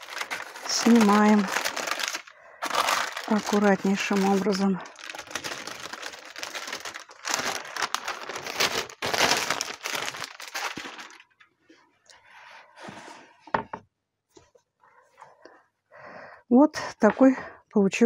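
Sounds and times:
baking parchment rustling and crinkling: 0.0 - 11.5.

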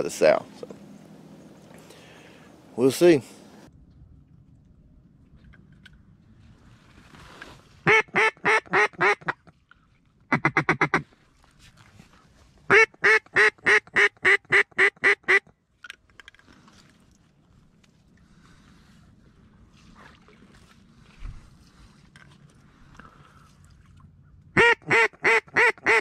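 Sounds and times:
duck call quacks: 7.9 - 9.4, 10.3 - 11.0, 12.7 - 15.5, 24.6 - 26.0.

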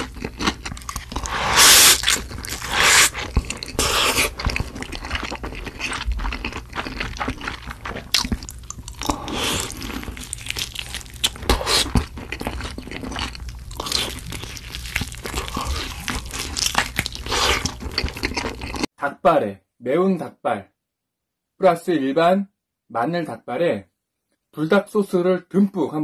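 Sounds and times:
crunching and chewing fried chicken: 0.0 - 18.9.

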